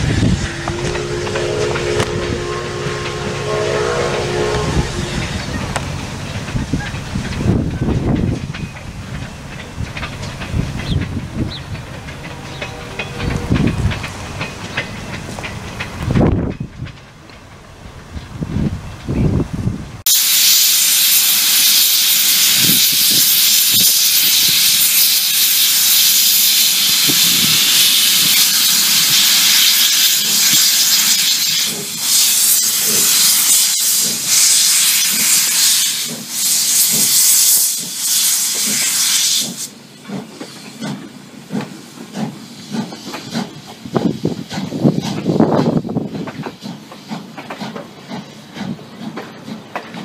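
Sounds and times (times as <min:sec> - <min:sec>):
rail clatter: 0:00.0 - 0:19.9, 0:21.1 - 0:50.0
steam hissing from locomotive: 0:20.0 - 0:50.0.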